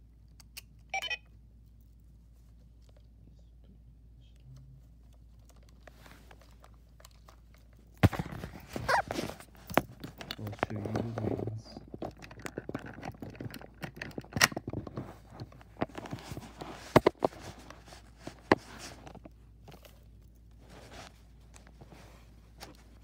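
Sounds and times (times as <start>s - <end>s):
rustling: 4.6s - 23.0s.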